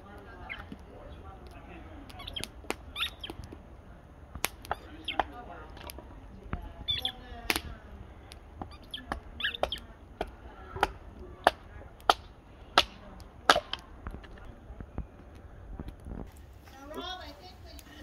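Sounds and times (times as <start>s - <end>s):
hatchet splitting wood: 8.3s - 14.4s.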